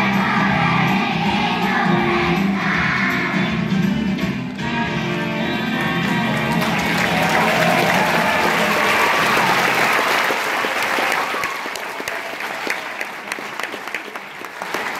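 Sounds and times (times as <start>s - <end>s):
audience applauding: 5.8s - 14.9s.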